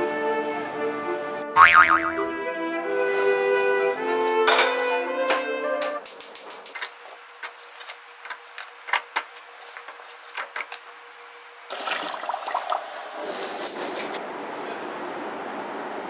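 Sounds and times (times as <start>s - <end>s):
water poured into steel sink: 11.7s - 13.5s.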